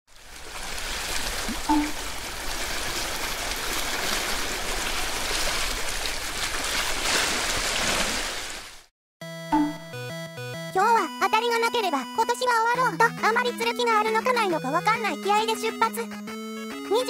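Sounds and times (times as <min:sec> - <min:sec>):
sea water washing: 0:00.1 - 0:08.9
short tonal blip: 0:01.7 - 0:02.0, 0:09.5 - 0:09.9.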